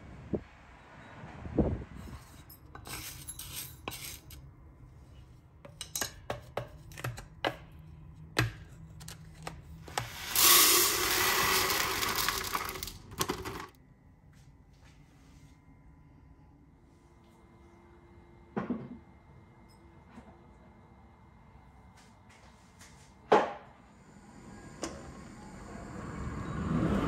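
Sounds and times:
wooden spoon scraping steel jar: 2.1 - 4.4
dry grains poured into plastic container: 9.9 - 13.7.

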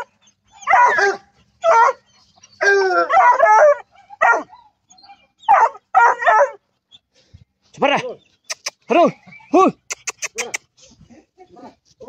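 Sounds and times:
hound baying: 0.0 - 6.6.

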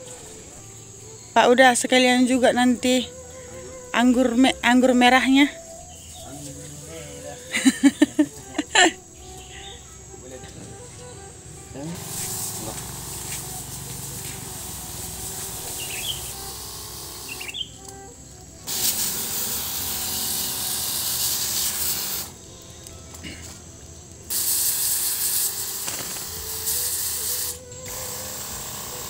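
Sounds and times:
steady low hum: 0.0 - 24.3
pressure sprayer hissing: 0.0 - 29.0.

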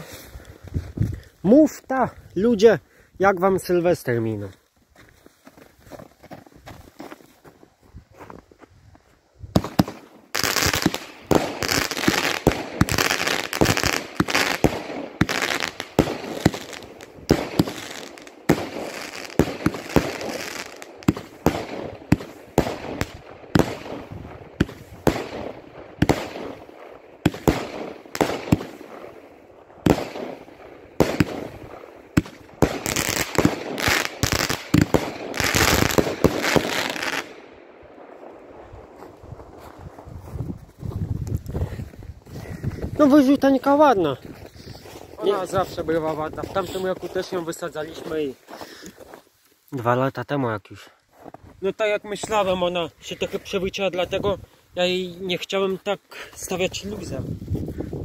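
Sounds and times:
firework cake firing: 9.6 - 37.4.

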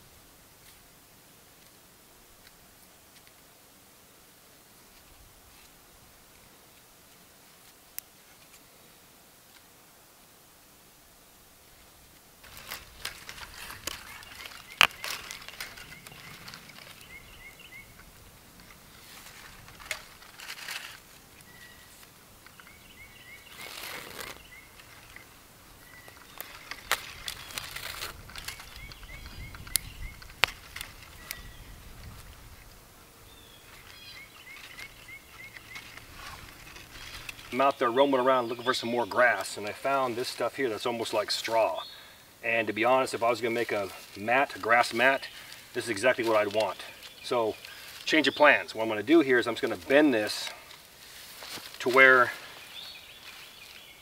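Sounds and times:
hands rustling and tugging cord: 12.4 - 17.2, 18.6 - 21.2, 23.4 - 25.4, 26.0 - 31.4, 33.7 - 37.7
bird chirping: 13.3 - 18.2, 20.7 - 31.9, 33.2 - 41.0, 51.9 - 54.0.

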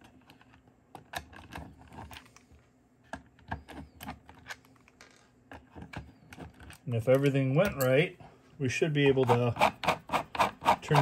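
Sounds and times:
plastic parts clicking and tapping: 0.0 - 7.9.

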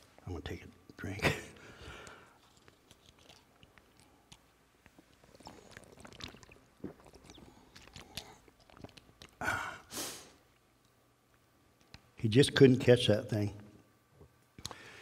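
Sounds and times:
man drinking and swallowing: 4.0 - 9.9.

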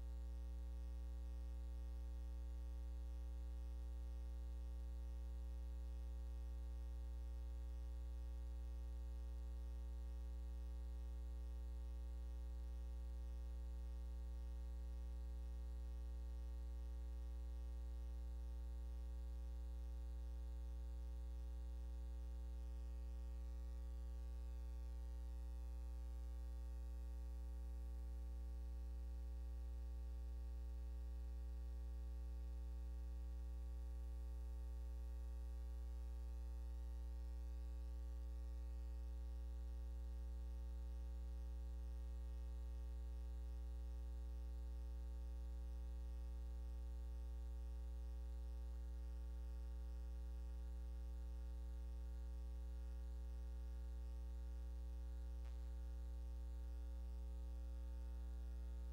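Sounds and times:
electrical hum with hiss: 33.9 - 58.9.

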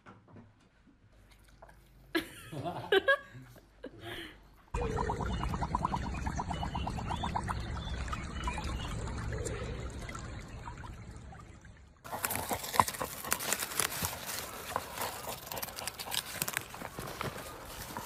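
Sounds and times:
shallow stream trickling: 4.8 - 18.0
dog digging in dry soil: 12.1 - 18.0.

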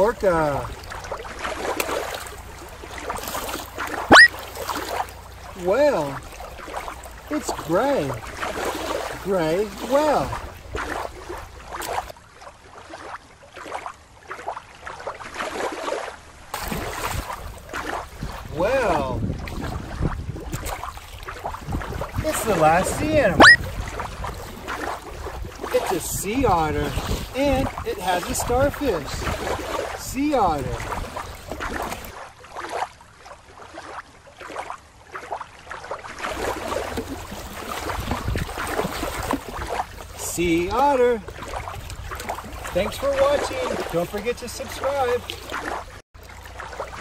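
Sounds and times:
water splashing and lapping: 0.0 - 47.0
wind buffeting microphone: 16.7 - 29.7, 37.3 - 40.1, 41.4 - 42.7.

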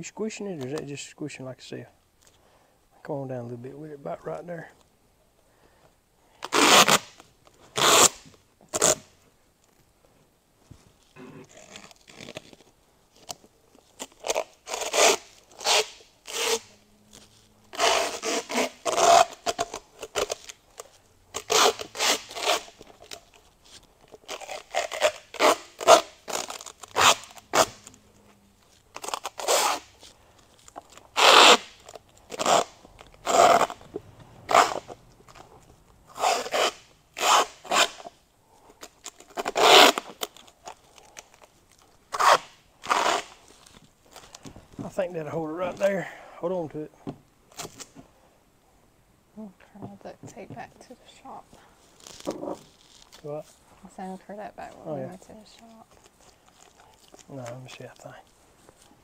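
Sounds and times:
duct tape ripping: 6.4 - 9.8, 11.0 - 38.2, 38.8 - 44.5, 47.5 - 48.0, 51.8 - 53.3, 54.8 - 59.0.

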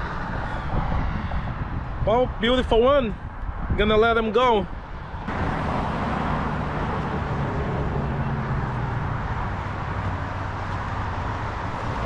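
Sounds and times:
tyre and road noise: 0.0 - 12.0
vehicle engine hum: 4.7 - 12.0.

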